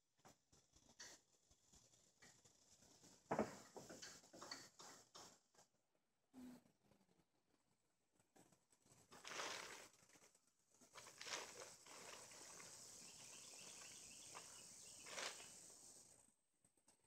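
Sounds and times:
plastic tarp rustling: 8.9 - 16.1.

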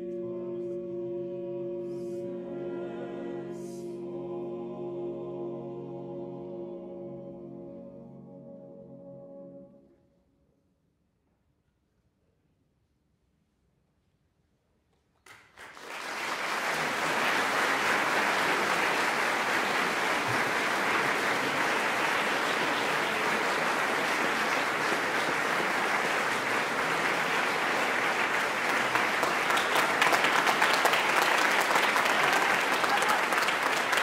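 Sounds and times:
audience applause: 15.3 - 34.0.

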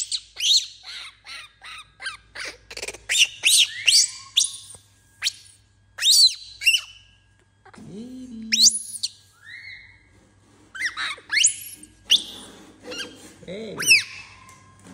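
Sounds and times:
infant monkey squeaking: 0.0 - 7.0, 8.5 - 10.0, 10.8 - 12.3, 13.8 - 14.5.

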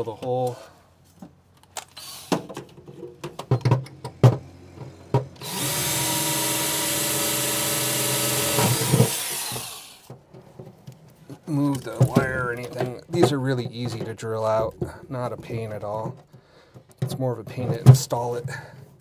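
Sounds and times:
handling clicks and knocks: 0.1 - 5.4, 10.0 - 19.0
power drill running: 1.9 - 2.4, 5.4 - 10.1.

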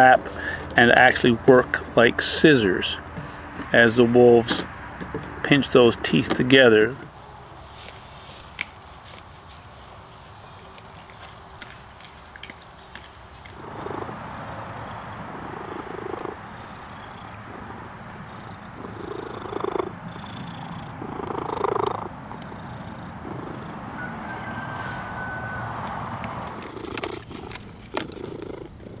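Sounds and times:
cat purring: 13.4 - 23.8, 26.5 - 29.0.

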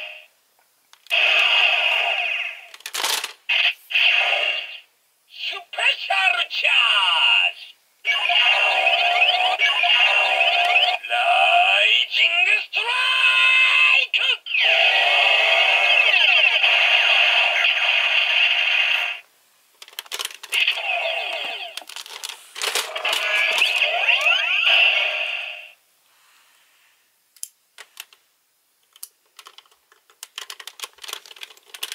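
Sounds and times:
synthesized voice: 4.0 - 16.7, 20.6 - 21.8, 22.9 - 25.8
tinny electronic sound effects: 8.1 - 11.1, 22.9 - 25.8.

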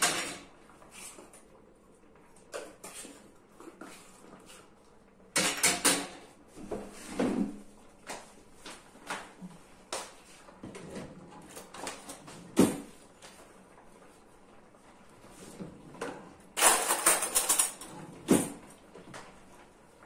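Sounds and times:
kitchen things knocking and clicking: 5.3 - 6.3, 16.0 - 18.6.

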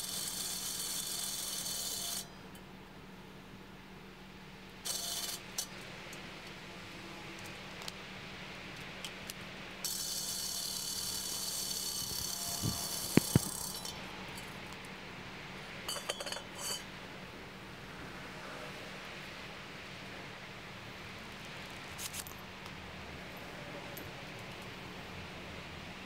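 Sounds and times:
drill boring into steel: 0.0 - 2.3, 4.9 - 5.4, 9.8 - 13.9.

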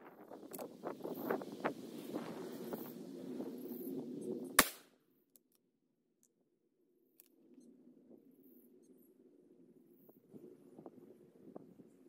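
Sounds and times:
rifle shot: 4.6 - 4.9.

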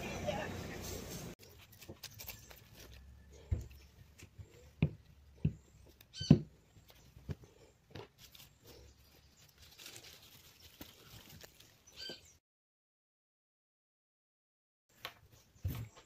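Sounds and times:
cloth bags rustling: 0.3 - 4.7, 6.8 - 12.0
produce thumping on wooden table: 6.2 - 6.6.

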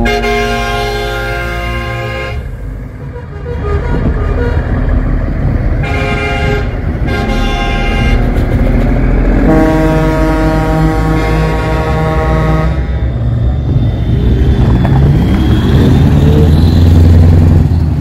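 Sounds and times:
truck air horn blasts: 0.0 - 4.8, 5.8 - 8.3, 9.4 - 13.0
diesel truck engine running: 0.0 - 18.0.

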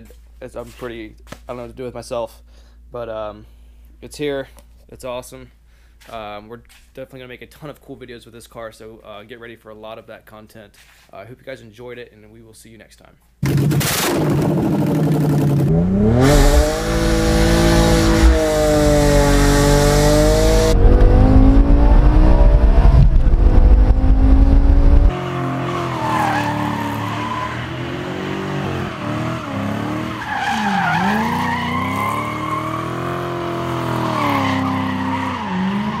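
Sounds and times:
car engine revving: 13.5 - 36.0
tires squealing: 25.1 - 36.0.

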